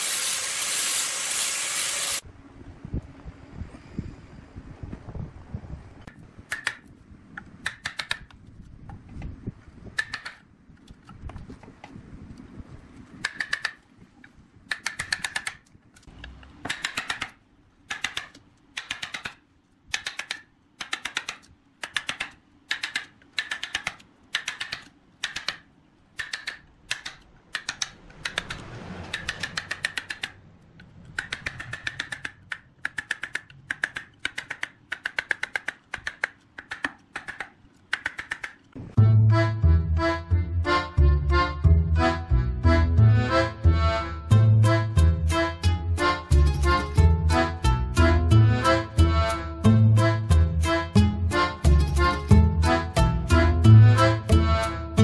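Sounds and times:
chisel paring wood clicks: 0:07.6 - 0:08.4, 0:10.0 - 0:11.1, 0:13.2 - 0:13.8, 0:14.7 - 0:30.4, 0:31.1 - 0:38.7.

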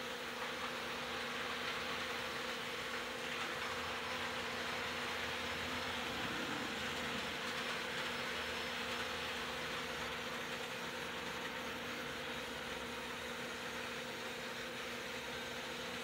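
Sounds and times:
model train motors humming: 0:00.0 - 0:16.0
wheels rolling on track: 0:00.1 - 0:16.0.

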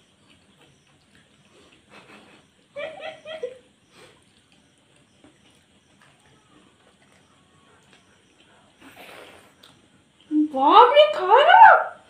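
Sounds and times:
chewing and sucking: 0:00.0 - 0:02.8, 0:03.8 - 0:10.3.

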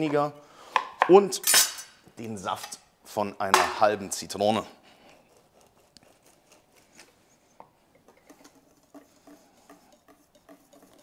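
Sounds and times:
whisk ticking against metal bowl: 0:08.2 - 0:11.0.

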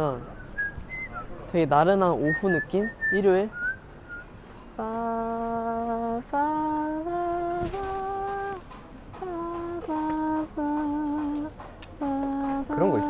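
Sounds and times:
man humming slow tune: 0:04.8 - 0:08.6, 0:09.2 - 0:13.0.

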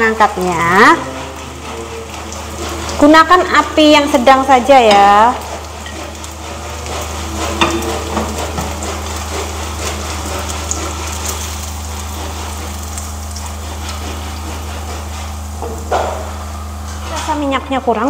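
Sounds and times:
fritters sizzling in oil: 0:00.0 - 0:17.8
spatula scraping a pan: 0:00.3 - 0:17.3.

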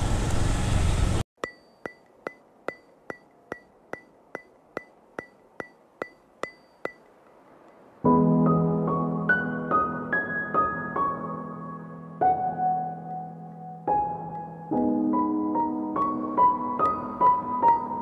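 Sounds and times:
sharp ringing ticks: 0:01.4 - 0:08.0
background piano music: 0:08.0 - 0:18.0.

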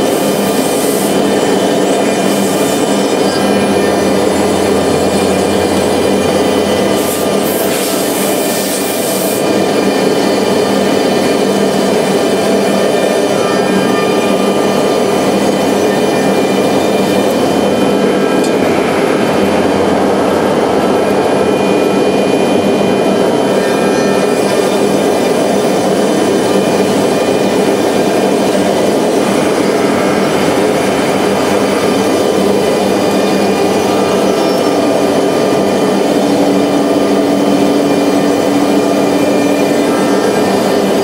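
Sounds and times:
router machine running: 0:00.0 - 0:41.0
spindle whining: 0:00.0 - 0:41.0
low hum: 0:09.7 - 0:41.0.

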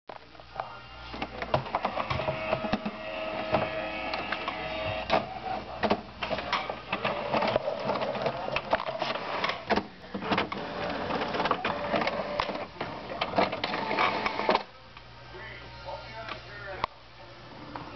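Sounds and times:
printer motor whirring: 0:01.0 - 0:14.7.

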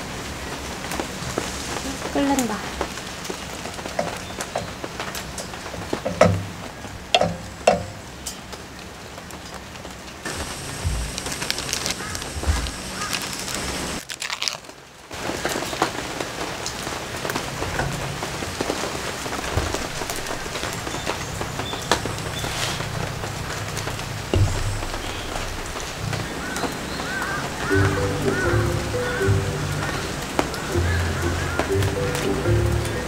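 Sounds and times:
heavy rain on a tarp: 0:00.0 - 0:33.0
wooden spoon knocking metal pot: 0:06.0 - 0:06.5, 0:07.2 - 0:08.0.

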